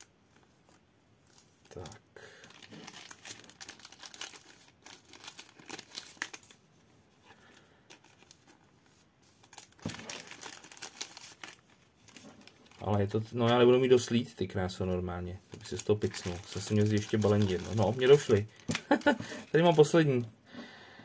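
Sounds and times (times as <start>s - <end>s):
packaging crinkling: 0.4s - 6.6s, 7.4s - 8.7s, 9.3s - 14.1s, 15.5s - 20.1s.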